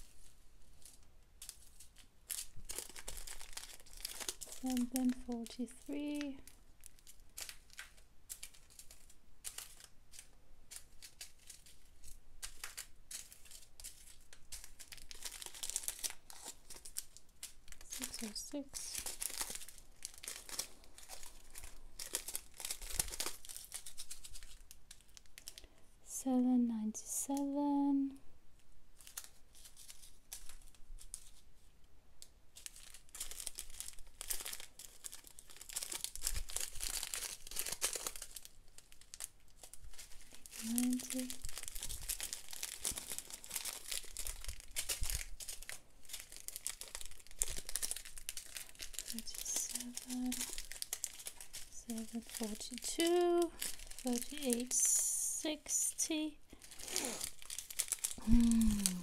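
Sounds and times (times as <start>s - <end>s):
plastic bags crinkling: 0.0s - 25.8s, 28.9s - 59.0s.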